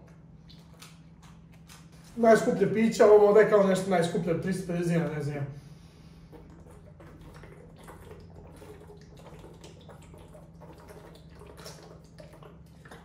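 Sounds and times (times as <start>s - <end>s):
liquid gurgling in bottle: 6.2s - 13.0s
man gulping from bottle: 6.2s - 13.0s.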